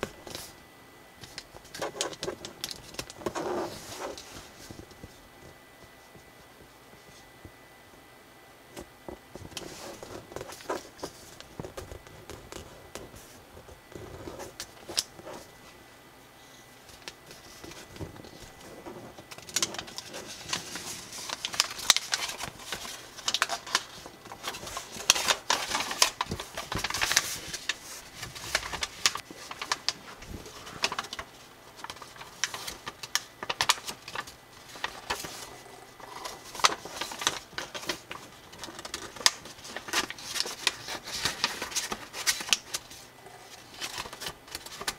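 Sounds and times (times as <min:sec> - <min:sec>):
paper crinkling and rustling: 0:00.0 - 0:00.6, 0:01.2 - 0:07.3, 0:08.8 - 0:15.8, 0:16.8 - 0:44.9
fingers scraping along paper folds: 0:01.2 - 0:06.3, 0:09.3 - 0:15.5, 0:16.9 - 0:44.9.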